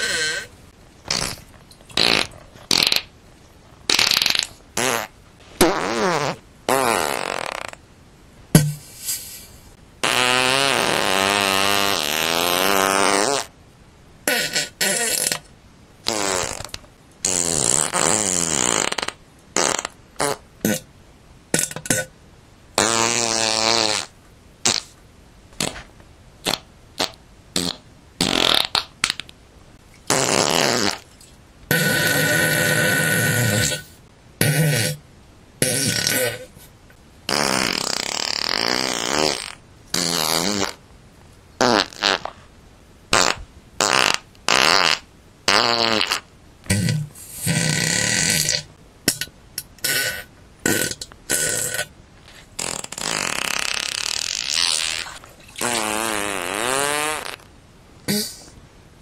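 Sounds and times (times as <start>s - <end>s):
fart sounds: 0.0s - 7.8s, 8.6s - 13.6s, 14.2s - 20.9s, 22.8s - 29.3s, 30.0s - 35.0s, 35.6s - 36.7s, 37.3s - 40.8s, 41.6s - 42.5s, 43.1s - 57.5s, 58.1s - 58.6s.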